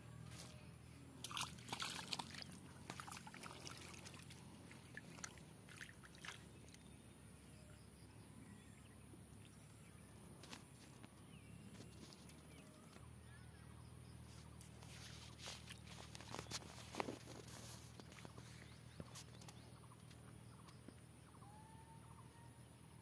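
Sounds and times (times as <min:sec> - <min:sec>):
pond water splashing: 0:01.1 - 0:06.9.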